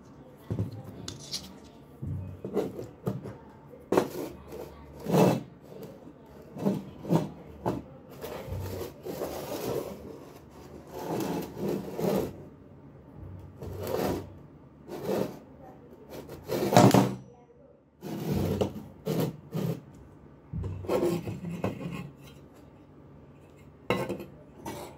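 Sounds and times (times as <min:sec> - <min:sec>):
magnet rubbing scrape: 0:01.1 - 0:01.7, 0:08.2 - 0:12.4, 0:13.6 - 0:14.3, 0:14.9 - 0:15.4, 0:18.0 - 0:19.9.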